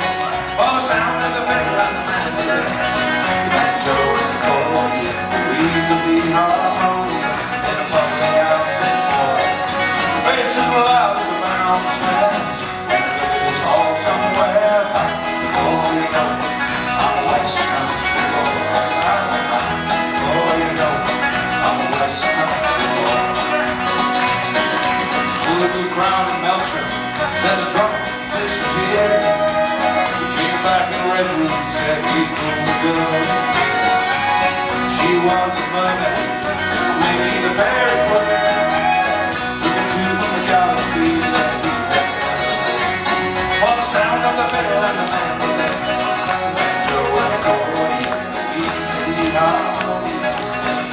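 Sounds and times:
live folk band playing: 0.0s - 50.9s.

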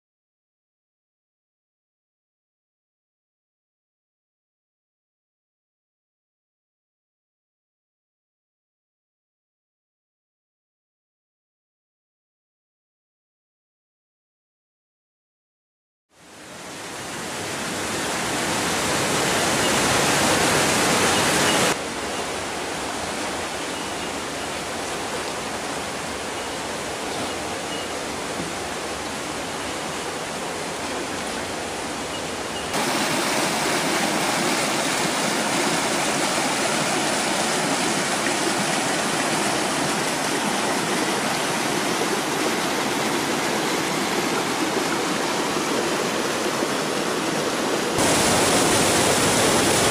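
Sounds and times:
river water rushing over rocks: 16.3s - 49.9s.

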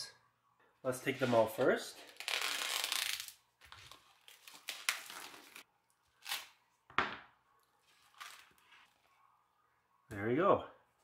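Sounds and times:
plastic wrap crinkling and tearing: 2.0s - 6.6s.

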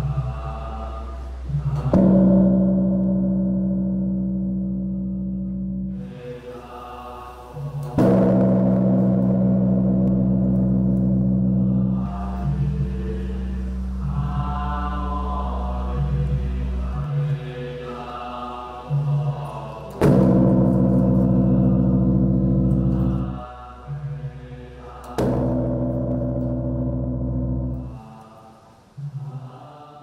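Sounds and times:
large temple bell ringing: 8.0s - 13.0s, 20.0s - 23.4s.

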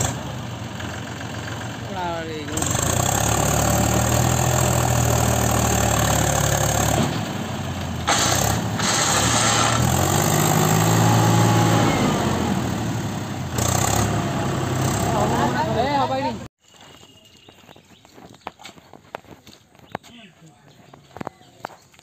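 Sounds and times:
tractor diesel engine revving hard: 0.0s - 16.5s.

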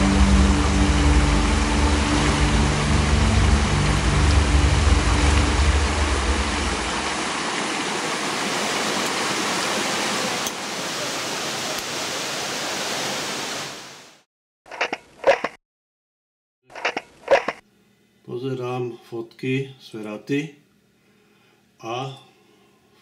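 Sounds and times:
low rumble: 0.0s - 7.2s
falling water rushing: 0.0s - 14.2s.

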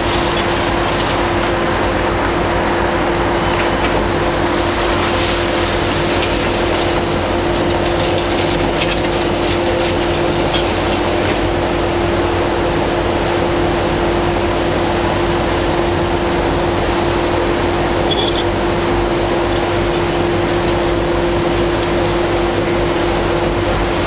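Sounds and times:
excavator engine and hydraulics: 0.0s - 24.0s
concrete crackling and breaking: 4.9s - 11.6s.

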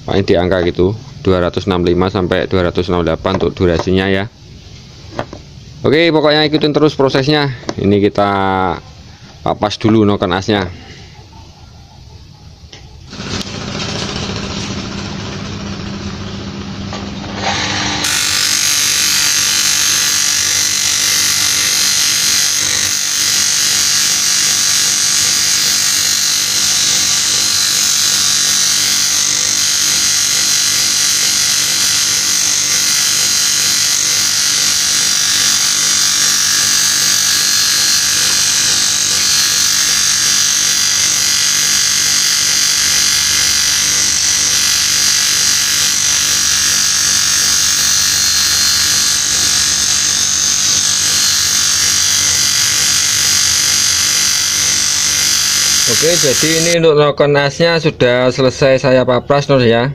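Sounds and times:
grinding wheel grinding metal: 13.0s - 56.8s.

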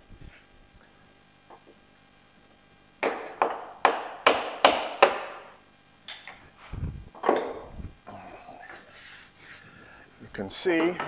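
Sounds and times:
sharp knocks on wood: 3.0s - 5.5s.

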